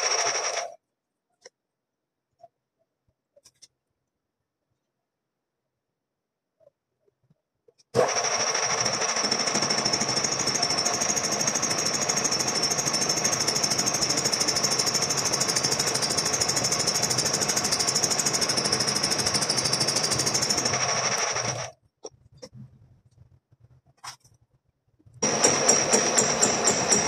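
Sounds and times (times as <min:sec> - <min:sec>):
gear-cutting machine stroking: 0:25.2 - 0:27.0.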